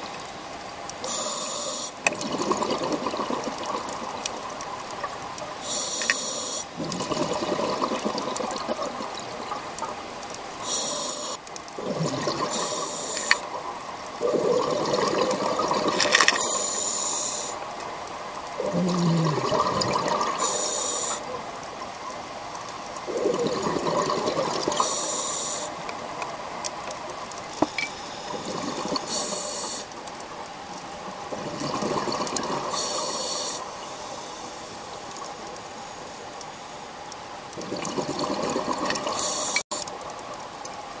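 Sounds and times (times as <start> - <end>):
regulator inhalation hiss: 1.0 - 2.0, 5.6 - 6.8, 10.6 - 11.4, 12.5 - 13.5, 16.3 - 17.6, 20.4 - 21.4, 24.8 - 25.8, 28.0 - 30.0, 32.7 - 35.0, 39.1 - 39.8
exhaled bubbles gurgling: 1.0 - 33.9, 37.5 - 40.4.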